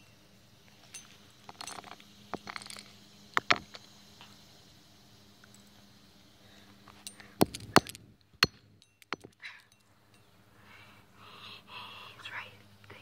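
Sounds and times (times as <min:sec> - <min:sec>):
fidget spinner knocking on asphalt: 0:00.9 - 0:03.9, 0:07.4 - 0:09.4.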